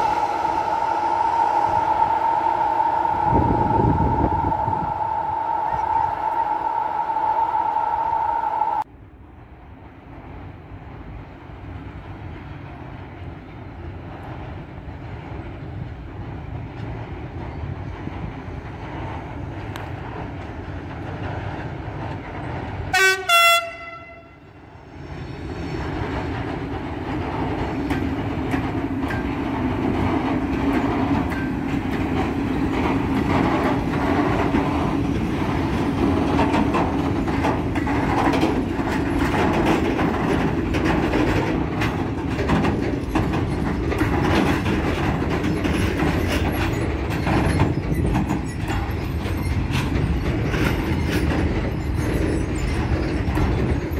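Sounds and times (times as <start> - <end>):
train wheels rumbling over rail joints: 0.0 - 53.9
locomotive horn blasts: 22.9 - 24.5.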